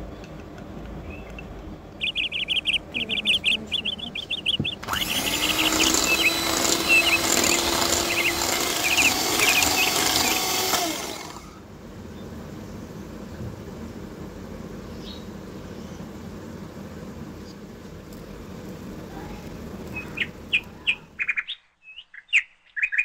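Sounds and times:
rapid high bird chirps: 0:01.0 - 0:11.2, 0:19.9 - 0:23.0
electric hand mixer whipping: 0:04.6 - 0:11.6.

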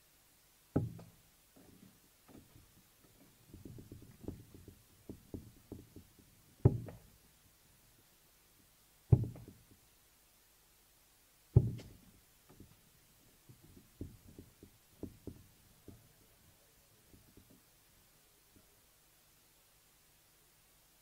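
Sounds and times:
darts striking dartboard: 0:09.1 - 0:09.6, 0:11.6 - 0:12.0.

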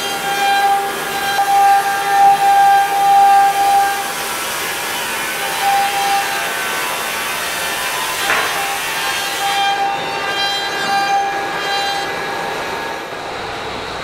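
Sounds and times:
router bit cutting wood hiss: 0:00.0 - 0:14.0.

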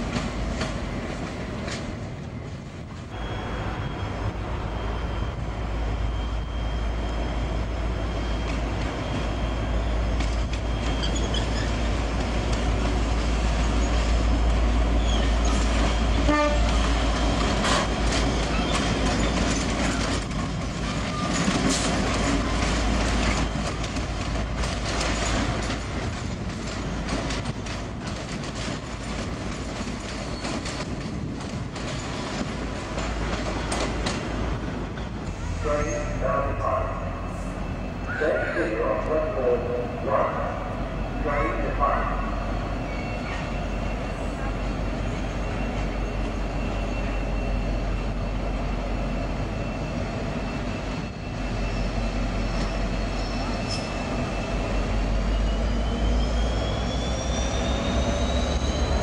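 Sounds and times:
diesel locomotive engine rumble: 0:00.0 - 0:59.0
train carriages rolling on rails: 0:00.0 - 0:59.0
train horn toot: 0:16.2 - 0:16.9, 0:35.6 - 0:37.5.

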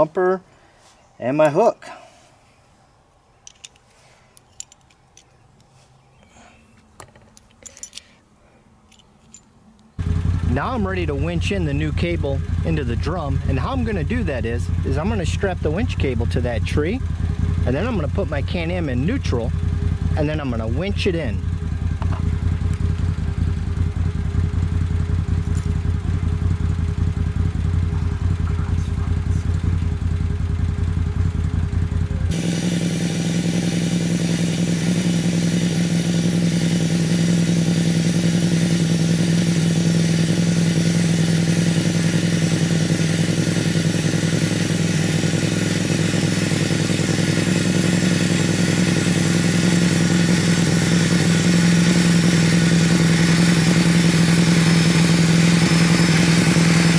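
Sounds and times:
engine idling: 0:10.0 - 0:56.9
electric winch running: 0:32.2 - 0:56.9.

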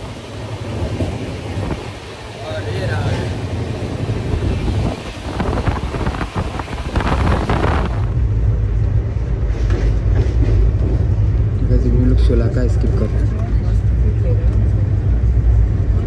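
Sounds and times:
train rumble: 0:00.0 - 0:16.0
wind buffeting microphone: 0:03.3 - 0:11.6.

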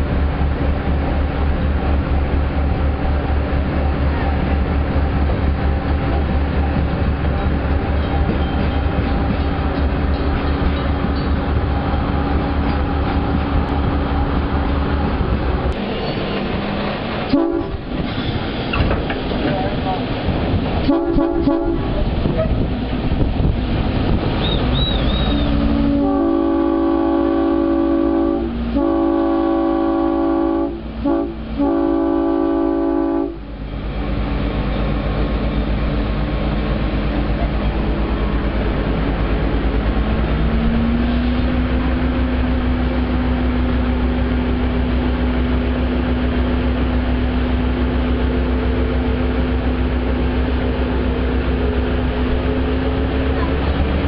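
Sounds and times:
locomotive horn blasts: 0:17.3 - 0:17.9, 0:20.9 - 0:22.0, 0:25.3 - 0:33.4.

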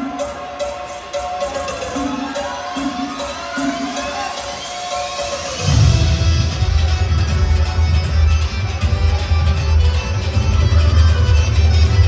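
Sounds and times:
crowd cheering: 0:00.0 - 0:07.4
bhangra music playing: 0:00.0 - 0:12.0.

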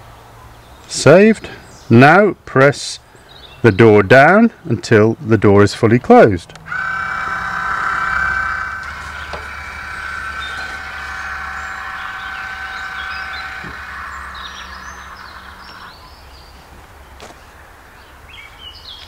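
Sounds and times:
small electric motor whining: 0:06.7 - 0:16.3.

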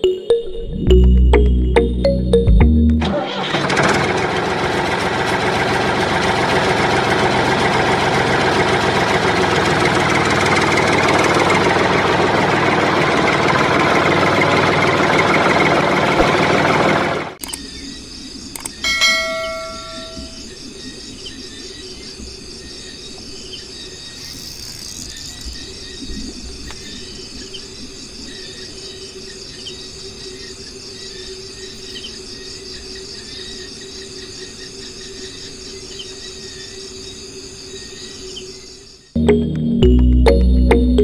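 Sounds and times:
low hum: 0:00.0 - 0:03.2, 0:39.2 - 0:41.0
insect chorus: 0:17.4 - 0:39.2
short ringing chime: 0:18.8 - 0:20.4.

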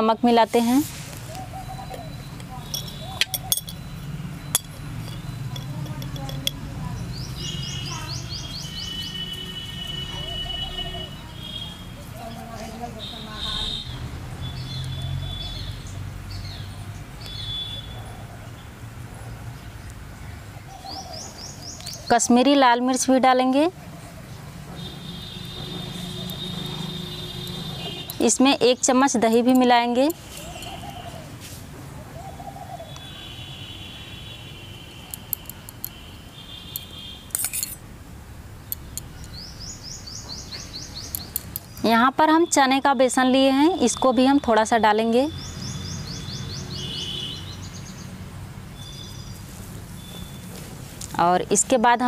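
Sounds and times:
small bird chirping: 0:01.3 - 0:11.6, 0:30.1 - 0:31.3, 0:38.7 - 0:42.0, 0:48.8 - 0:50.6
spoon clatter: 0:02.7 - 0:03.8, 0:04.5 - 0:06.6, 0:35.1 - 0:36.0, 0:36.8 - 0:37.8, 0:41.1 - 0:41.8
spoon clinking on steel bowl: 0:02.7 - 0:03.9, 0:04.5 - 0:06.6, 0:35.1 - 0:36.0, 0:36.8 - 0:37.8, 0:41.1 - 0:41.8.

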